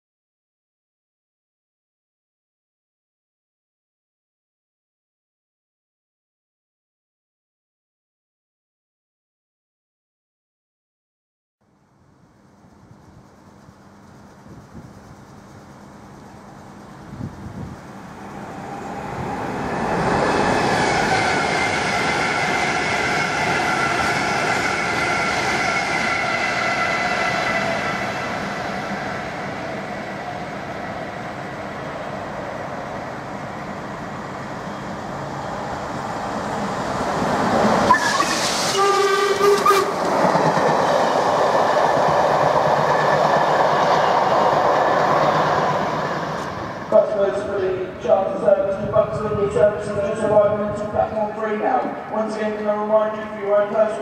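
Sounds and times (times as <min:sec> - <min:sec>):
steam locomotives passing: 0:11.8 - 0:54.0
steam whistle blast: 0:20.9 - 0:28.3, 0:37.8 - 0:40.1.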